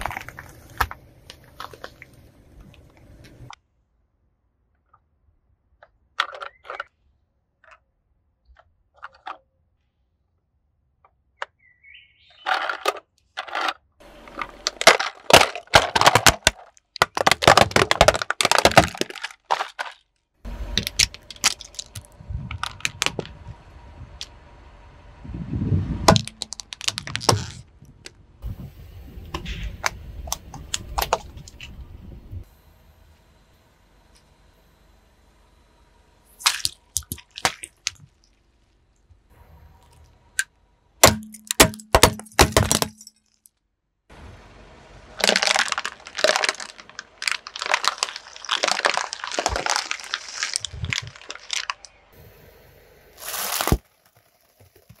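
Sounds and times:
plastic toys cracking under tyre: 0.0s - 2.2s, 12.4s - 23.4s, 26.1s - 28.2s, 29.3s - 31.7s, 36.4s - 39.0s, 41.0s - 43.6s, 45.2s - 52.2s, 53.2s - 55.0s
low rumble: 20.4s - 36.4s.

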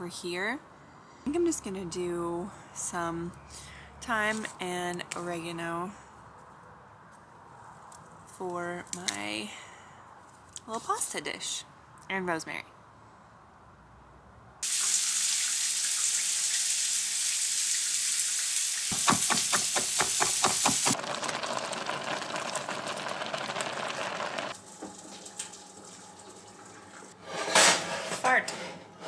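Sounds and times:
food sizzling in a frying pan: 14.6s - 27.0s
knife chopping on wooden board: 18.9s - 21.0s.

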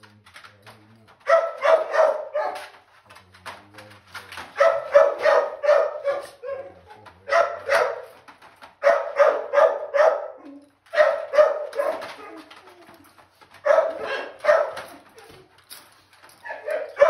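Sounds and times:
dog barking: 1.2s - 2.8s, 4.5s - 8.2s, 8.8s - 12.6s, 13.5s - 15.4s, 16.4s - 17.0s.

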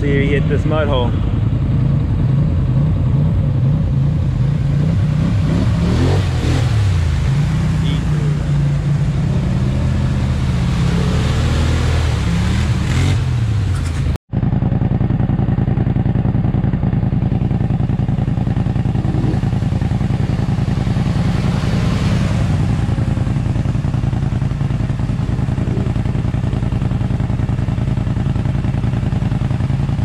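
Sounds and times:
quad engines revving: 2.3s - 14.2s, 18.7s - 23.6s, 25.0s - 27.2s
water splashing: 3.4s - 14.2s, 17.4s - 30.0s.

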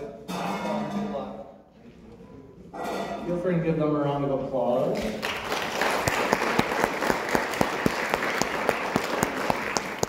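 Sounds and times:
audience applauding: 5.2s - 10.0s
person clapping steadily: 5.2s - 10.0s.

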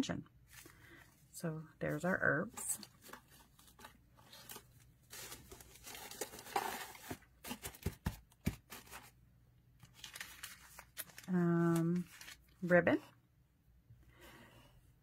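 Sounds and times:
packaging rustling and crinkling: 2.5s - 9.2s, 9.8s - 12.6s.

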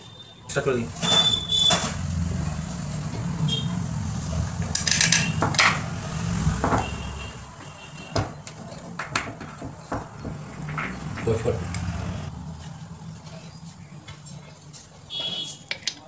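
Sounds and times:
low rumble: 1.8s - 7.4s, 10.0s - 13.6s.

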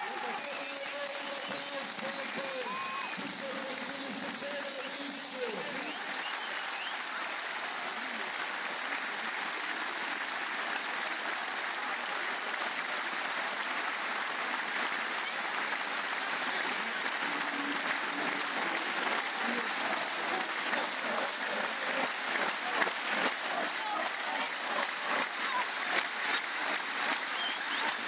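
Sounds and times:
scattered voices: 0.0s - 6.4s, 14.6s - 28.0s
stadium crowd applauding: 0.0s - 28.0s.

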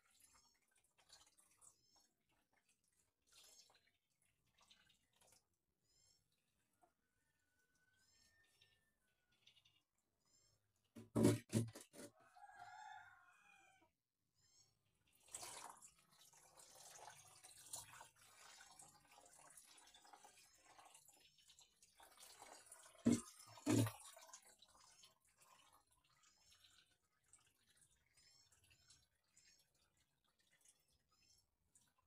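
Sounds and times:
water splashing and dripping: 0.0s - 5.6s, 15.1s - 31.0s
rooster crowing: 12.2s - 13.8s.

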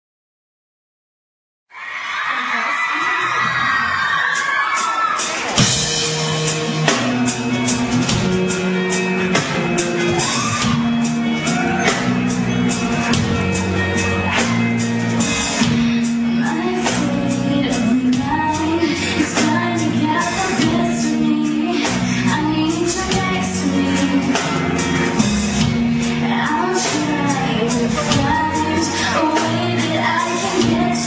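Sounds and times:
steady drum beat: 4.2s - 21.2s, 21.8s - 31.0s
person singing: 15.6s - 25.1s, 26.0s - 31.0s.

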